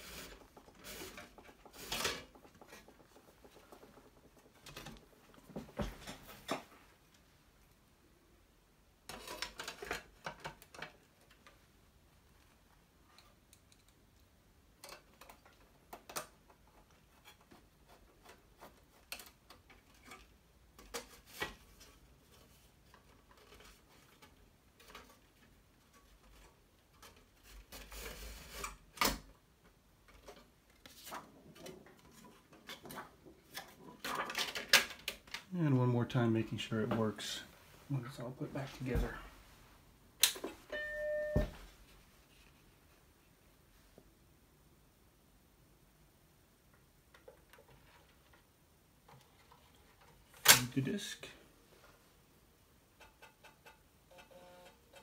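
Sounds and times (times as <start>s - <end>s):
clicks and knocks of metal parts: 13.1s - 17.6s, 31.5s - 35.5s.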